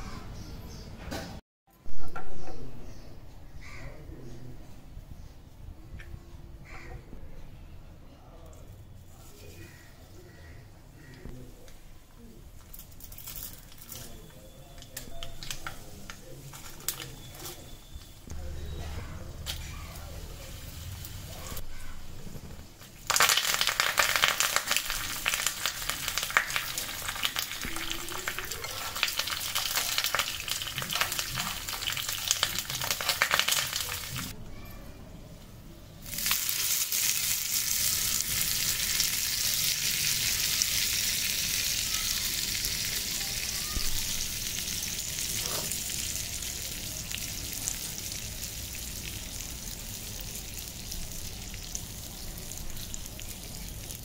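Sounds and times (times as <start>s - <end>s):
spices crackling in hot oil: 11.8s - 18.5s, 19.2s - 34.4s, 36.0s - 54.0s
steady sizzle: 12.7s - 34.4s, 36.0s - 54.0s.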